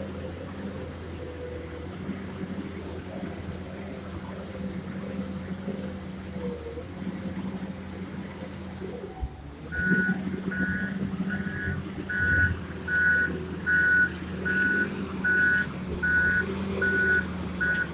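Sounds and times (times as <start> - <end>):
diesel engine running: 0.0 - 17.9
reverse alarm beeping: 9.7 - 17.9.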